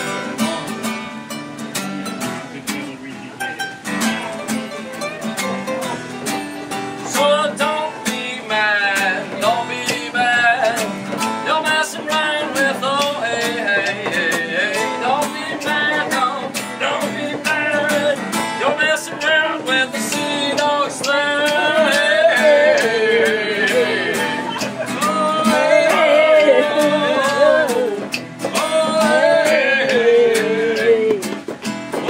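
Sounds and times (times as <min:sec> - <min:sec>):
acoustic guitars strumming: 0:00.0 - 0:32.0
person singing: 0:07.0 - 0:31.5.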